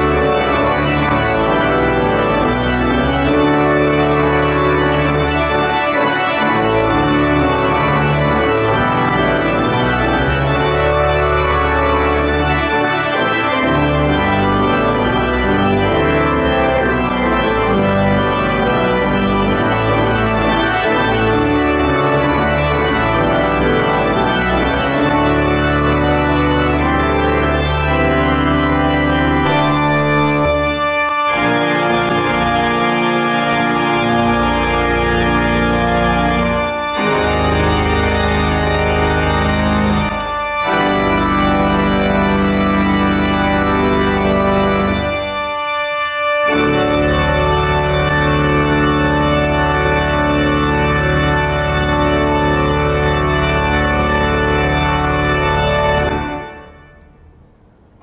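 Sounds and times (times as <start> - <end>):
church organ chords: 0.0 - 58.0.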